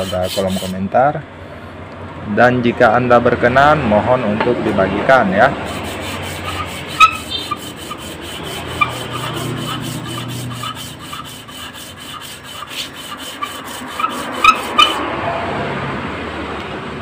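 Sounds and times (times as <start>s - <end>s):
metal scraping on sandpaper: 0.0s - 0.9s, 5.5s - 15.0s.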